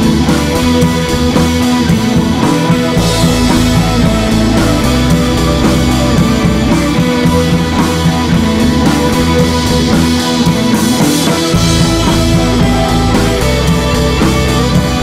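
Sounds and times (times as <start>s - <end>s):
rock music with guitar and drums: 0.0s - 15.0s.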